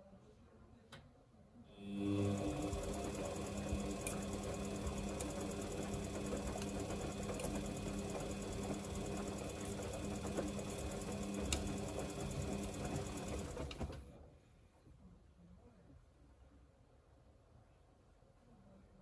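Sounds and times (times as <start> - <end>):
washing machine motor hum: 1.7 - 14.3
laundry churning: 2.1 - 14.0.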